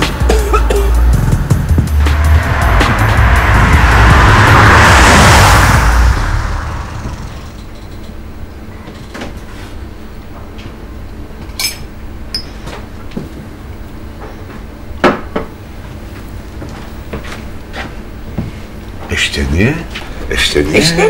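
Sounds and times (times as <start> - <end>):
glasses clinking on a table: 11.5 - 12.5.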